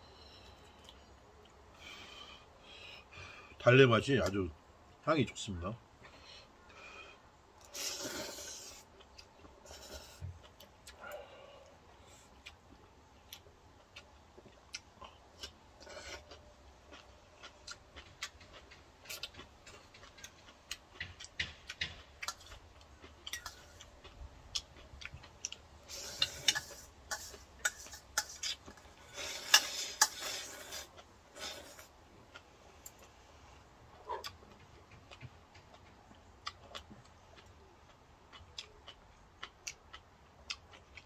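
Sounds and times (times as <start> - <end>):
eating clicks and smacks: 16.9 - 25.7, 34.2 - 41.0.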